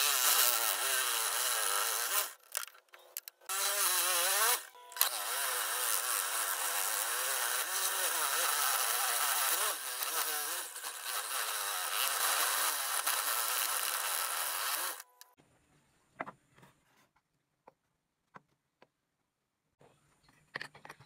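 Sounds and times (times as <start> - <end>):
electric saw cutting wood: 0.0 - 2.6, 3.5 - 15.1.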